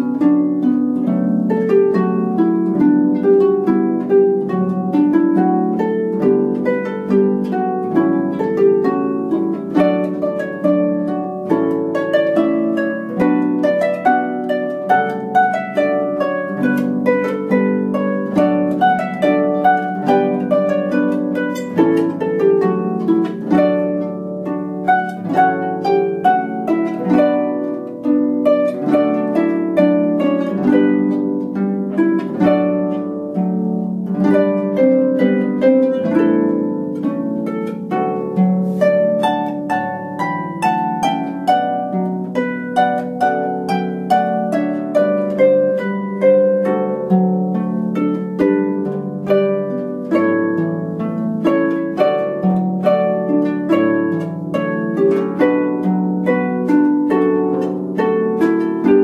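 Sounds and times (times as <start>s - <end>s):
harp plucked notes: 0.0s - 59.0s.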